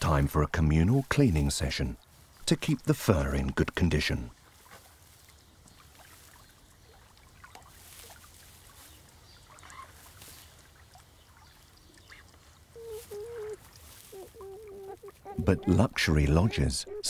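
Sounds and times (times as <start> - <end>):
rustling and scratching in fur: 7.7 - 10.8, 12.4 - 15.4
faint animal calls: 11.9 - 17.0.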